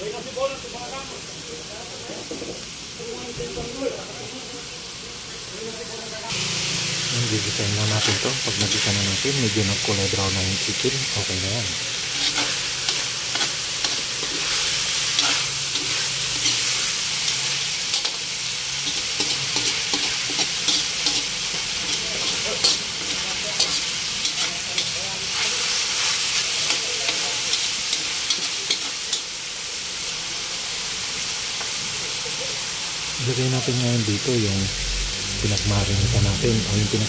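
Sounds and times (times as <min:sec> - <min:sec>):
chicken sizzling in hot oil: 0:00.0 - 0:37.0
spatula scraping a wok: 0:06.3 - 0:29.4.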